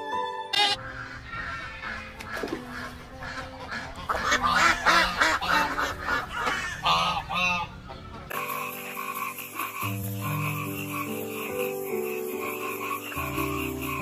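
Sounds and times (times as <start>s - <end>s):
background music: 0.0s - 14.0s
ducks quacking: 0.5s - 14.0s.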